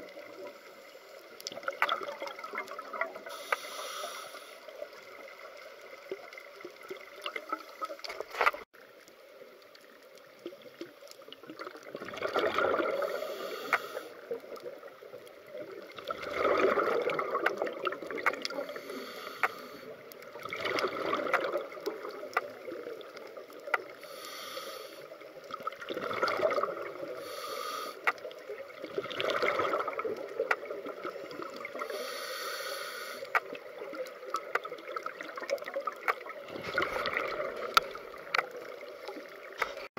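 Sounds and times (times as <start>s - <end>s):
exhaled bubbles underwater: 1.4s - 3.4s, 10.4s - 19.1s, 20.0s - 24.0s, 25.2s - 27.5s, 28.2s - 32.0s, 33.4s - 39.7s
regulator inhalation hiss: 3.2s - 4.8s, 12.9s - 14.3s, 18.6s - 20.0s, 24.0s - 25.2s, 27.1s - 28.2s, 31.8s - 33.4s
small clicks: 33.2s - 36.4s.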